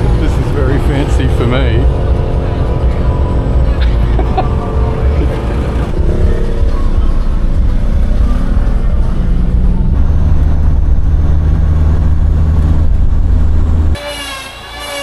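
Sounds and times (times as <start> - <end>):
phonk music with heavy bass: 1.8 - 13.6.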